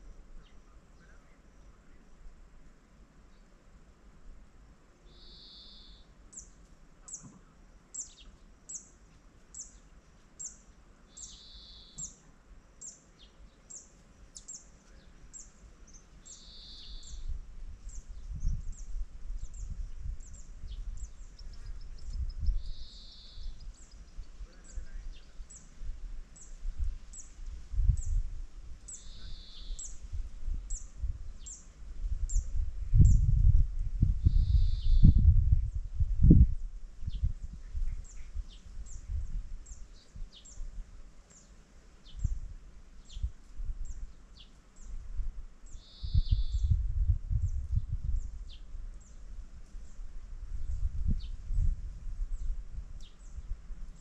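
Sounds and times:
wind rumbling on microphone: 0:00.0 - 0:02.6, 0:16.5 - 0:41.2, 0:42.0 - 0:54.0.

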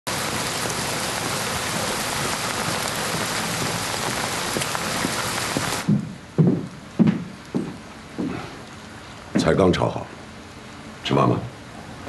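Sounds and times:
heavy rain falling: 0:00.1 - 0:06.3.

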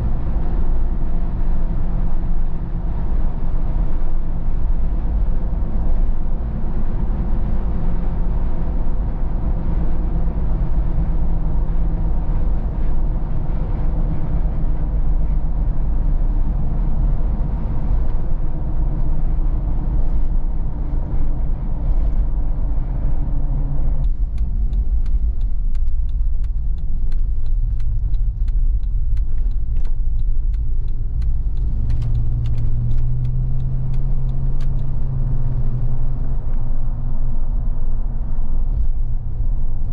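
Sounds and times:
low engine drone: 0:00.0 - 0:39.9
road and wind noise: 0:00.0 - 0:39.9
light ticks: 0:24.0 - 0:35.2.

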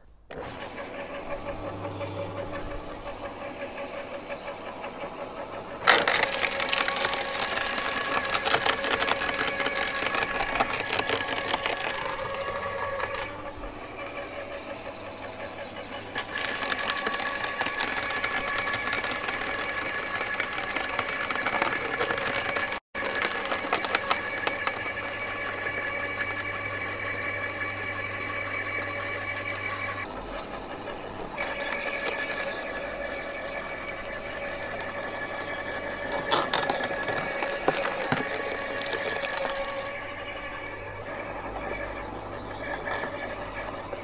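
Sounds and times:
garden shredder motor hum: 0:00.0 - 0:44.0
branches cracking in shredder: 0:05.8 - 0:13.4, 0:16.2 - 0:26.8, 0:30.0 - 0:40.0.

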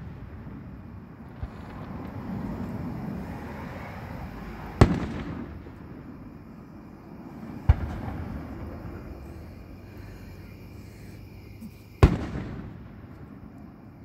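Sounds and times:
fireworks bangs with echo: 0:00.0 - 0:02.6, 0:04.8 - 0:06.4, 0:07.4 - 0:09.5, 0:12.0 - 0:13.8.

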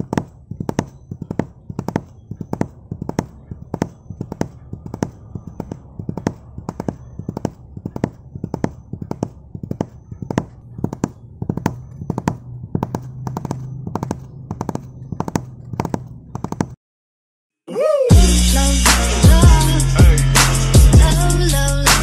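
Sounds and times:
horse hooves clip-clopping: 0:00.0 - 0:16.8.

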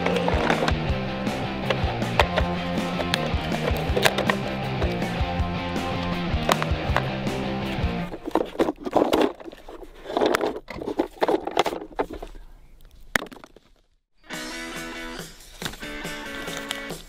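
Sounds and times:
tape and plastic crinkling: 0:15.5 - 0:17.0.

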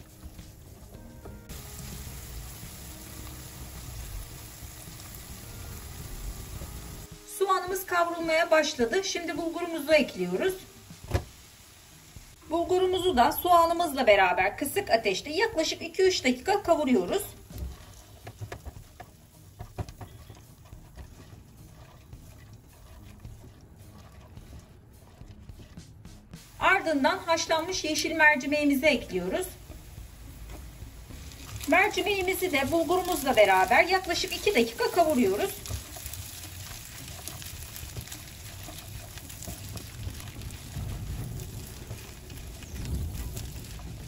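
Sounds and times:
light sizzle: 0:00.0 - 0:25.2, 0:26.3 - 0:44.0
spatula scraping in pot: 0:16.4 - 0:26.4, 0:29.0 - 0:43.8
low rumble: 0:39.6 - 0:44.0.

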